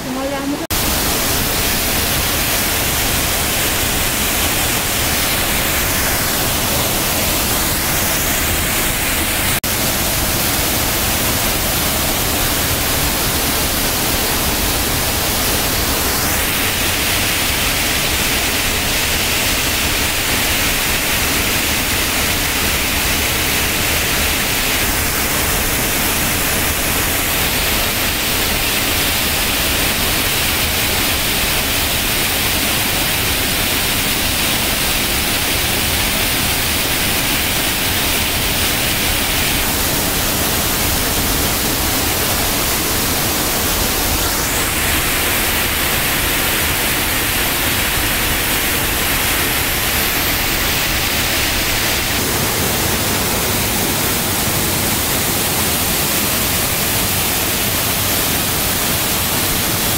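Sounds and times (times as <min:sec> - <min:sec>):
waterfall rushing over rock: 0:00.0 - 0:59.9.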